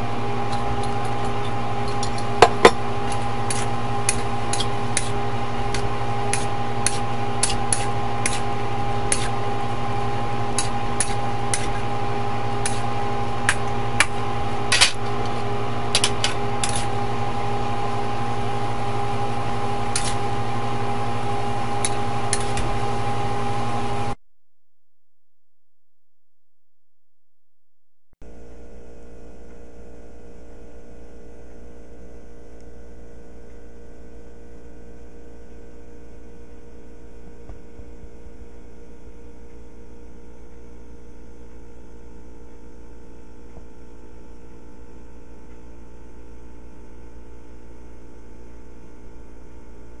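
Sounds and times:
steady mechanical hum: 0.0 - 24.2, 28.2 - 50.0
metal spatula scraping a wok: 9.1 - 9.4, 16.0 - 17.0.

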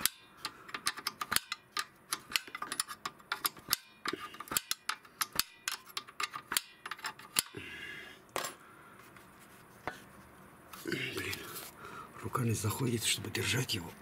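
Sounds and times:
wrench clicking on metal bolt: 0.0 - 7.6.

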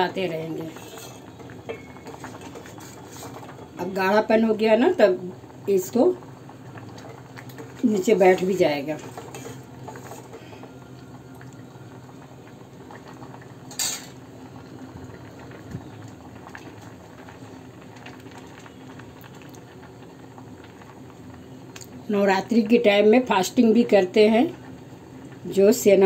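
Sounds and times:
pudding bubbling in a pot: 0.0 - 26.0
ladle stirring: 0.6 - 3.7, 6.9 - 10.6.

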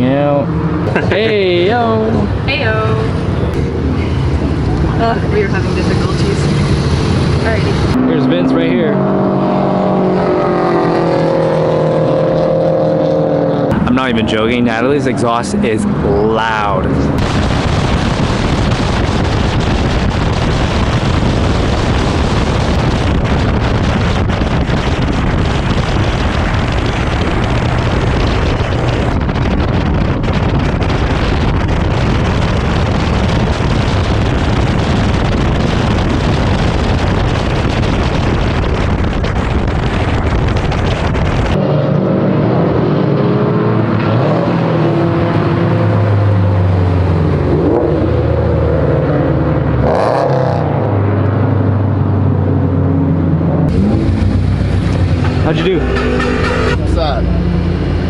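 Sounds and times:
car engine running: 0.7 - 9.0, 13.6 - 41.6, 52.3 - 58.0
wind noise on microphone: 17.0 - 41.8.

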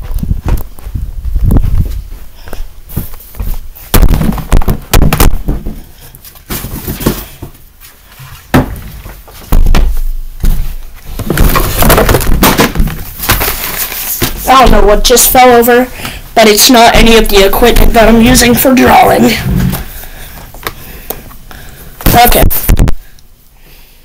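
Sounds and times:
knocks and thumps: 2.9 - 5.9, 8.5 - 14.8.

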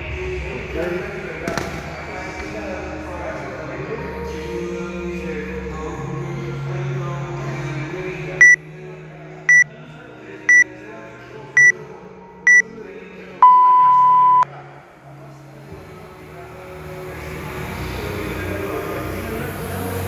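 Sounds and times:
background music: 0.0 - 20.0
long low timer beep: 13.4 - 14.4
short high timer beeps: 13.4 - 14.4.

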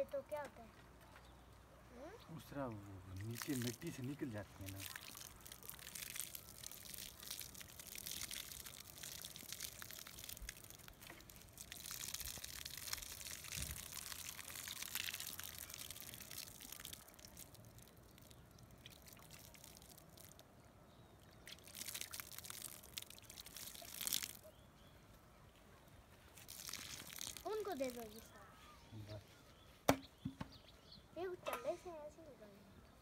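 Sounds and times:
water pouring onto soil: 2.5 - 20.6, 21.2 - 24.6, 26.3 - 28.4.

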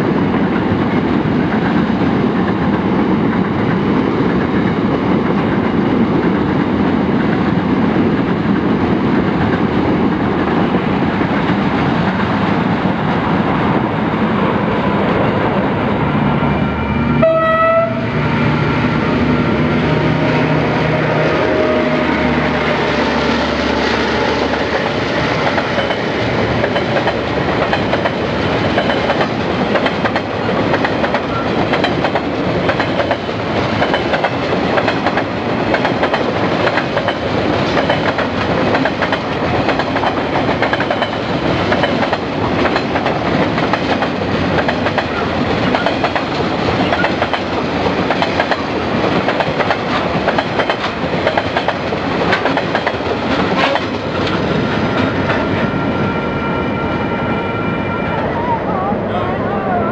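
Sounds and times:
diesel locomotive engine drone: 0.0 - 59.9
train horn blast: 16.6 - 25.0
train wheels clacking over rail joints: 24.2 - 55.6.

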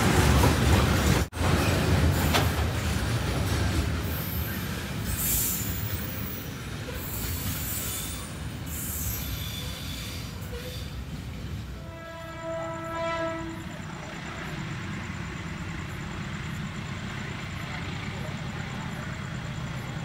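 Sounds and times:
train wheels rumbling on rails: 0.0 - 20.0
high-pitched wheel squeals: 4.2 - 11.0.

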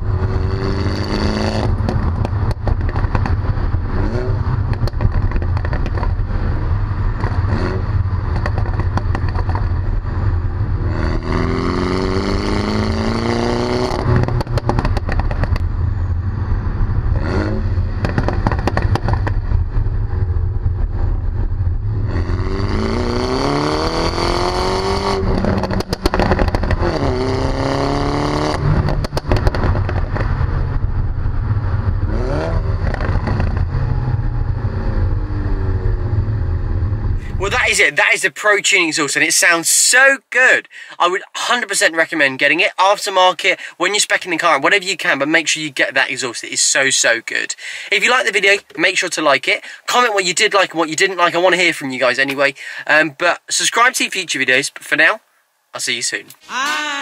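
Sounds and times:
car engine revving: 0.0 - 38.1
exhaust pops and crackles: 1.0 - 6.4, 7.0 - 10.1, 13.1 - 15.8, 17.1 - 21.4, 23.6 - 33.8
wind rumble on microphone: 28.6 - 37.4.

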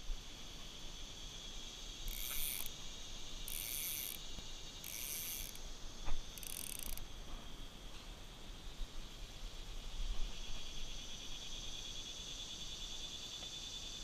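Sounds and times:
fly reel ratchet buzzing: 2.0 - 5.6, 6.3 - 7.0.

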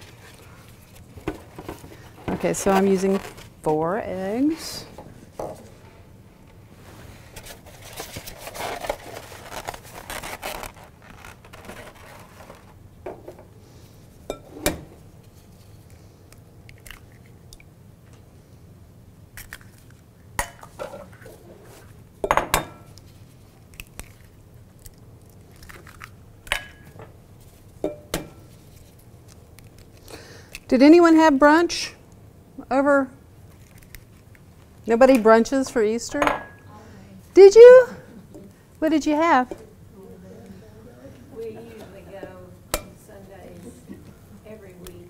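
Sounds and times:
rustling handling noise: 0.0 - 6.0, 6.6 - 12.8
eggshells crunching: 23.6 - 26.2.

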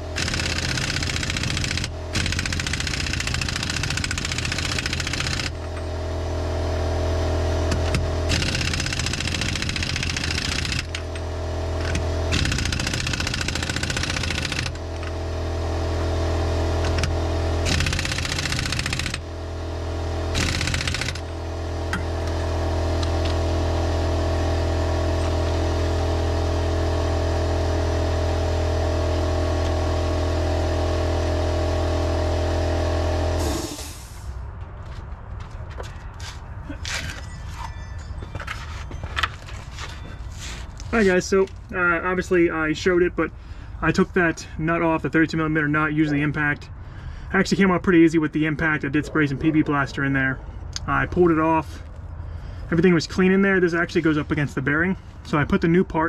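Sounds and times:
air impact wrench hammering: 0.0 - 6.0, 7.6 - 15.2, 16.7 - 19.3, 20.2 - 22.4, 33.3 - 34.3
motor hum: 0.0 - 34.2.

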